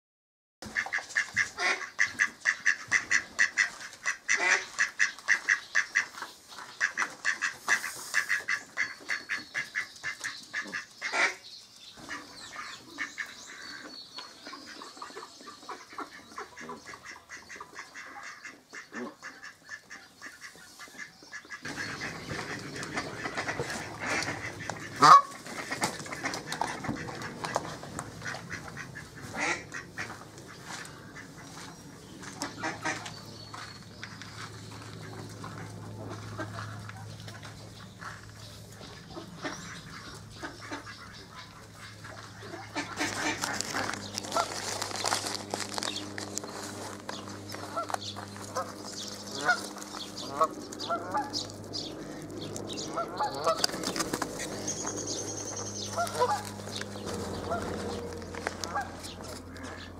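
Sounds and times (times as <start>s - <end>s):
ducks quacking: 0.6s - 11.4s, 12.0s - 59.9s
goose honking: 0.7s - 6.1s, 6.8s - 11.4s, 15.6s - 31.6s, 32.2s - 33.1s, 38.9s - 59.9s.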